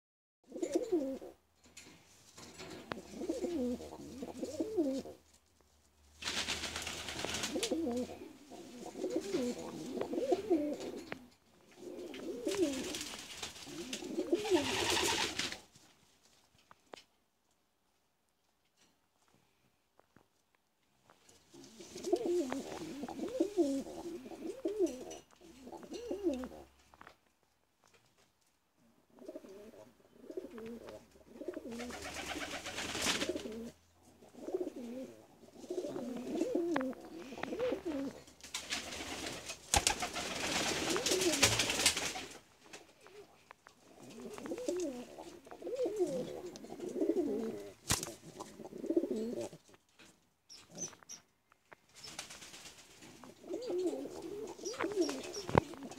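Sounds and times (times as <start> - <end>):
pigeons cooing: 0.5 - 1.4, 2.9 - 5.2, 7.3 - 15.3, 21.6 - 26.7, 29.2 - 38.3, 43.0 - 49.6, 53.1 - 55.9
rustling bursts: 5.2 - 8.1, 37.6 - 43.2.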